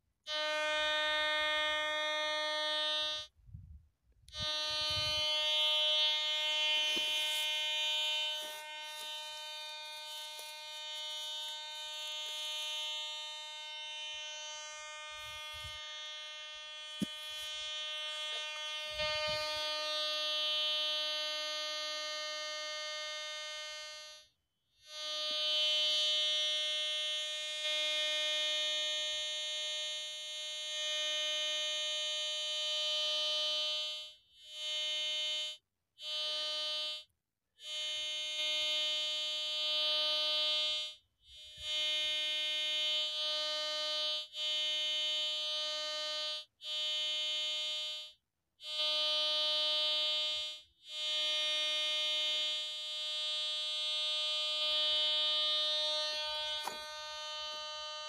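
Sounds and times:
pulsing low buzz: 0.3s - 21.5s
metal detector alert tone: 4.3s - 12.8s, 16.9s - 19.8s, 56.0s - 58.0s.

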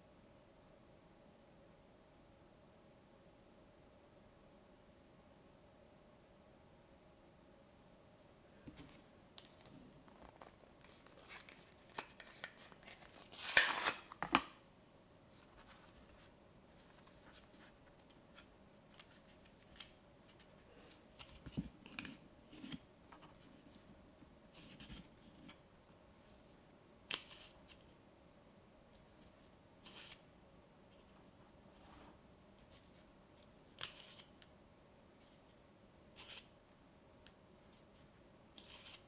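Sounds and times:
book pages rustling: 8.1s - 14.2s.

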